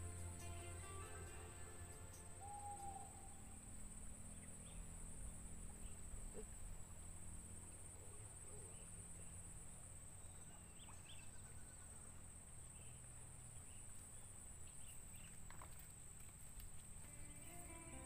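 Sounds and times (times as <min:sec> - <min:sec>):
faint bird chirps: 0:01.8 - 0:03.6, 0:08.0 - 0:15.7
high-pitched insect drone: 0:17.0 - 0:18.0.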